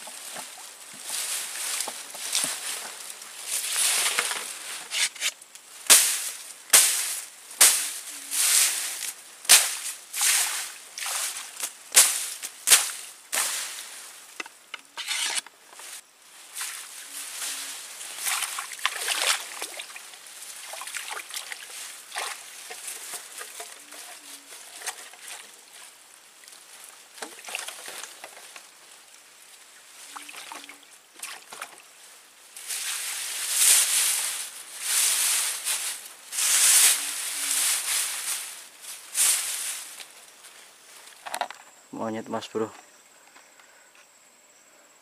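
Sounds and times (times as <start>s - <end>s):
stream water splashing: 9.5s - 13.8s, 18.2s - 22.9s, 30.0s - 31.9s.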